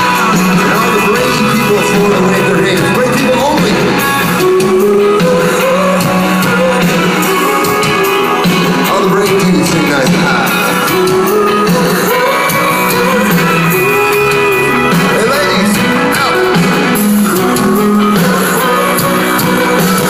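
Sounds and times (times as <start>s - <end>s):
live rock band with singer: 0.0s - 20.0s.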